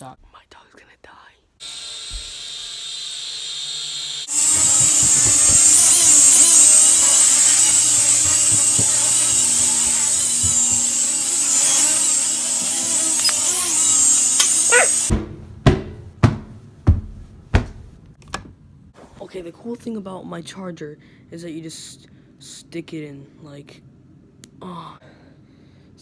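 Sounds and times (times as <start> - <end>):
toy drone propellers whining: 1.6 - 15.1
sharp knocks: 14.4 - 18.0.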